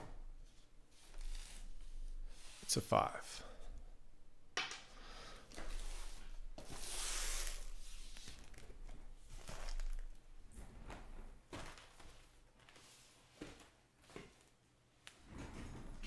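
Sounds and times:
cardboard boxes sliding across table: 5.5 - 8.6.

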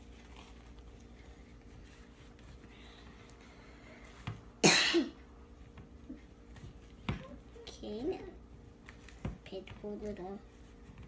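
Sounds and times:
person coughing: 4.6 - 5.2.

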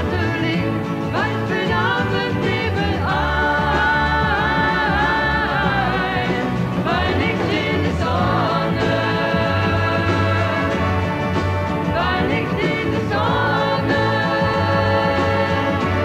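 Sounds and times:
man and woman singing pop song: 0.0 - 16.0.

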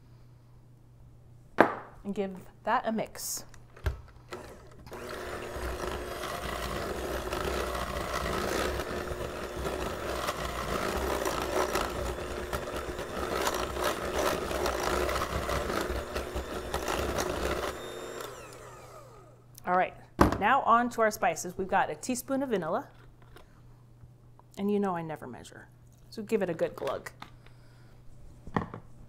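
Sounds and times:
electric hand mixer running: 4.3 - 19.4.

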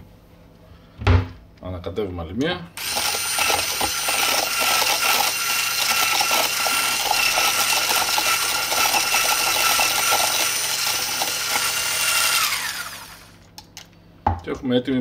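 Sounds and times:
whisk rattling against plastic cup: 2.8 - 12.4
electric hand mixer whining: 2.8 - 13.4.

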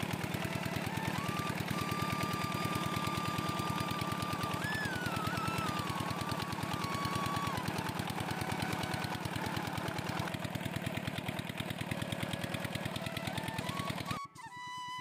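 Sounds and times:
pump engine chugging: 0.0 - 15.0.

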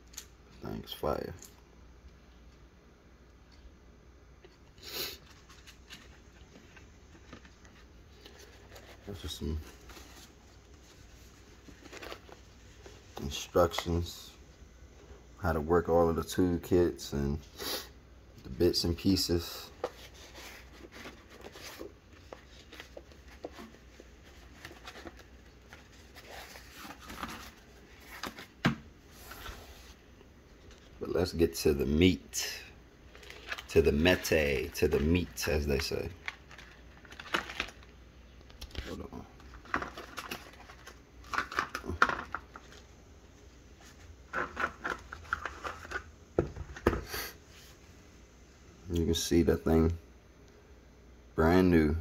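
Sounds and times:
paper rustling: 5.2 - 14.0, 19.7 - 30.0, 33.1 - 37.9, 38.5 - 42.9, 43.8 - 47.0.

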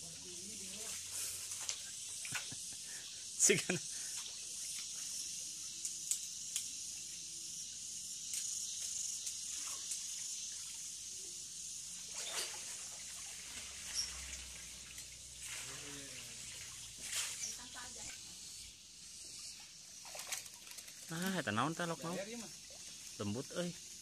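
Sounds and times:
water sloshing and trickling: 0.0 - 2.8, 8.7 - 24.0
steady high hiss: 0.0 - 24.0
faint splashes: 12.0 - 18.4.

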